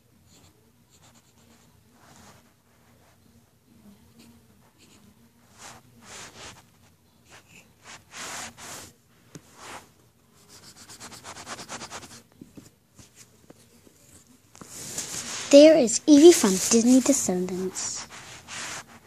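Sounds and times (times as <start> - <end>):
scratching strokes on paper: 4.2 - 12.3, 14.6 - 19.0.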